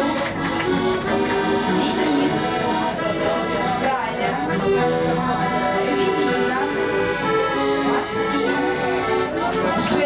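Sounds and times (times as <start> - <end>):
accordion melody: 0.0 - 10.0.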